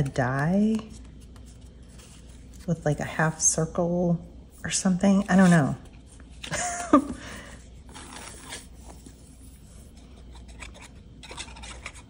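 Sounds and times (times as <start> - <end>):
paper rustling on desk: 5.1 - 12.0.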